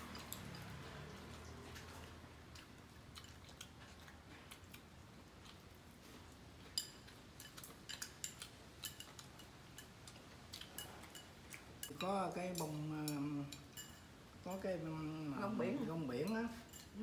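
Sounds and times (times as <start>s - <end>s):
faint chewing: 0.0s - 14.7s
chopsticks clicking on bowls: 6.6s - 14.7s.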